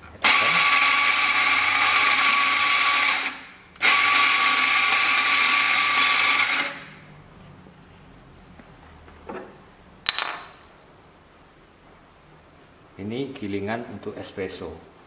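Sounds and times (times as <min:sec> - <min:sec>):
coffee grinder whining: 0:00.2 - 0:07.0.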